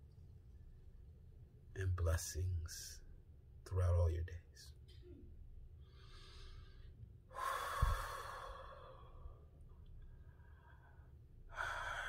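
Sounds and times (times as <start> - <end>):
man breathing deeply: 5.8 - 12.0.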